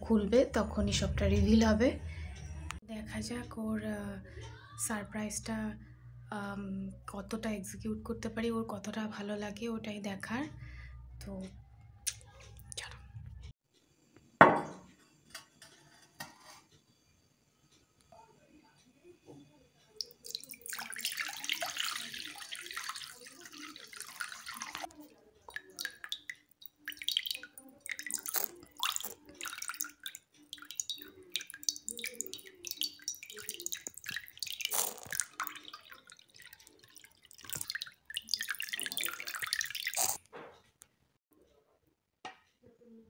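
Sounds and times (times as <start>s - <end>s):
water pouring into glass bowl: 20.0s - 40.2s
water splashing and dribbling: 20.0s - 40.2s.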